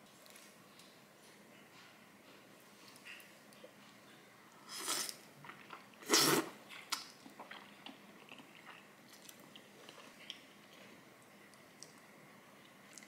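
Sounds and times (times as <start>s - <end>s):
loud noodle slurp: 4.7s - 5.2s, 6.0s - 6.6s.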